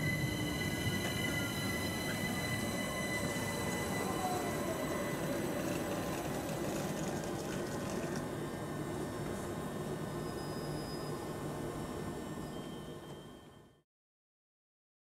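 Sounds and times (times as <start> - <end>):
train braking whine: 0.0 - 8.2, 9.8 - 13.8
wheels rumbling on rails: 0.0 - 8.2.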